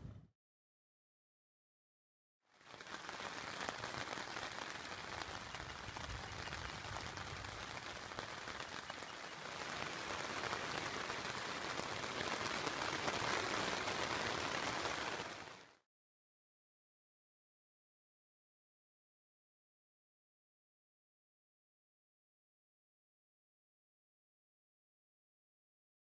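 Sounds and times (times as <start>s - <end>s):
rain on tent fabric: 2.5s - 15.8s.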